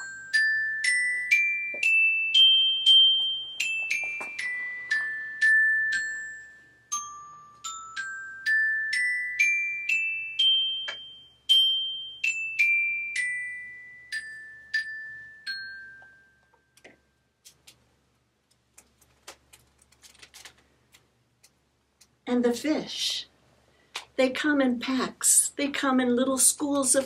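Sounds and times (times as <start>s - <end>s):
glockenspiel notes: 0.0s - 17.4s.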